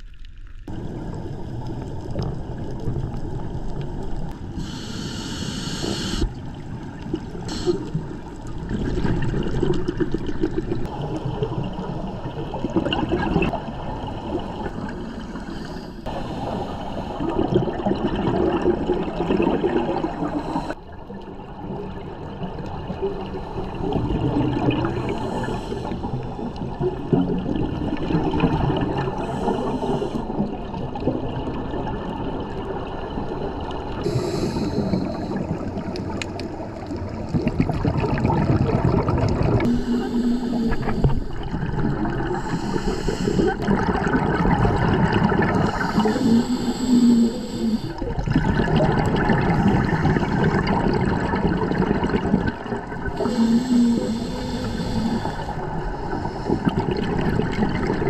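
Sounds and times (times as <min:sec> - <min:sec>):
regulator breathing underwater: 0:04.6 - 0:06.3, 0:07.5 - 0:08.0, 0:15.2 - 0:17.6, 0:20.0 - 0:20.8, 0:24.8 - 0:26.4, 0:29.0 - 0:30.5, 0:34.0 - 0:35.8, 0:39.6 - 0:44.2, 0:45.2 - 0:50.8, 0:53.2 - 0:58.0
bubbles gurgling: 0:06.2 - 0:58.0.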